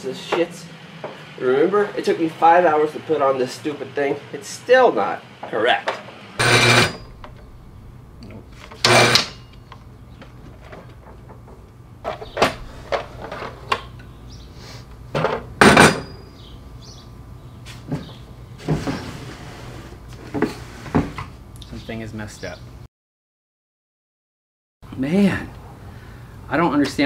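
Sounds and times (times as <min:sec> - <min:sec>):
wood and tools clattering: 0:05.9 - 0:07.6, 0:08.2 - 0:14.1
low steady hum: 0:06.4 - 0:15.2.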